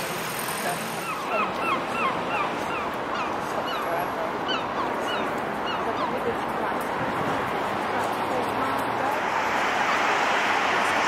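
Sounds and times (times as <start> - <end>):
seagulls calling: 1.0 - 6.4
steady background hiss: 9.2 - 11.0.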